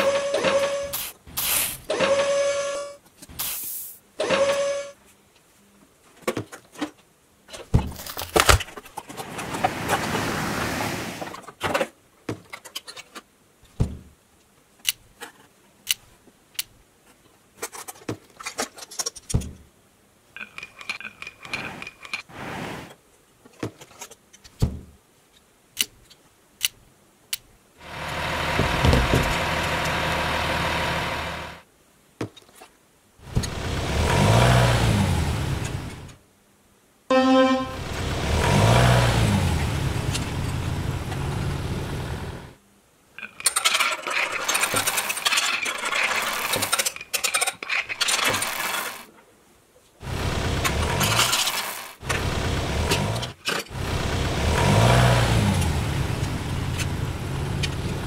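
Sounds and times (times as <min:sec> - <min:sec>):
plastic toy vehicles clicking: 0:43.2 - 0:49.1, 0:50.4 - 0:53.8.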